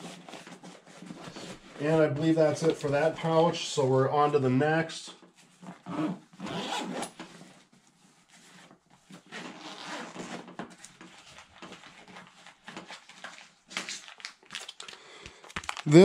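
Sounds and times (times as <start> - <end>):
bag fabric rustling: 5.5 - 13.4
zipper pulled open: 5.7 - 7.2, 9.2 - 10.5.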